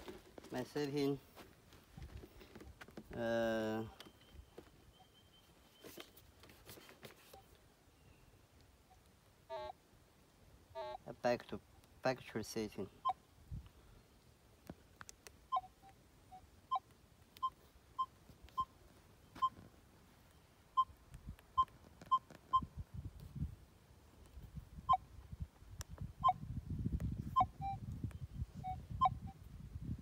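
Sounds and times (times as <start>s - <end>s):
short electronic beeps: 15.5s - 16.8s, 26.2s - 26.4s, 27.3s - 27.9s, 28.6s - 29.4s.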